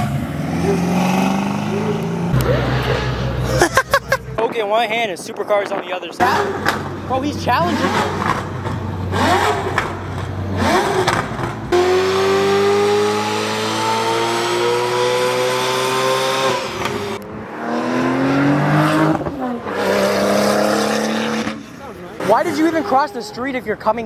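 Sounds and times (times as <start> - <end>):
engine revs rising: 0.0 - 4.2, 7.5 - 22.8
car engine full-throttle pull: 6.2 - 22.5.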